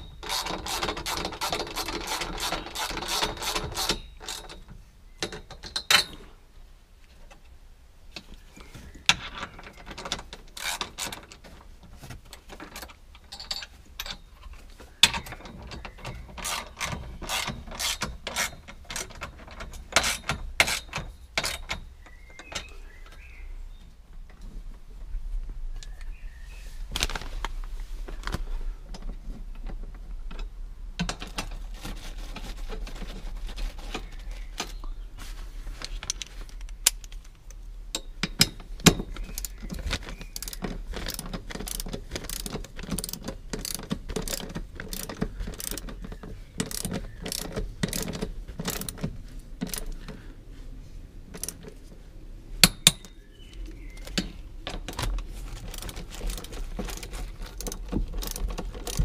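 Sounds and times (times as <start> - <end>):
socket ratchet clicking: 37.9 - 50.0, 51.3 - 51.7, 55.7 - 59.0.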